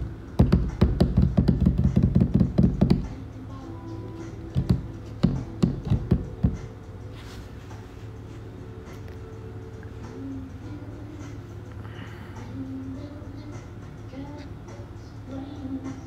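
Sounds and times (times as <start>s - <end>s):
quiet background music: 0.0s - 16.0s
taps and knocks: 0.4s - 3.1s, 4.5s - 6.6s.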